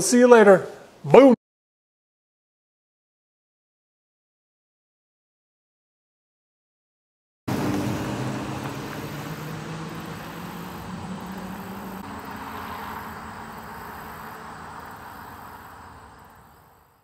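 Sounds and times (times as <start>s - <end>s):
passing vehicle engine and tyres: 7.5s - 17.0s.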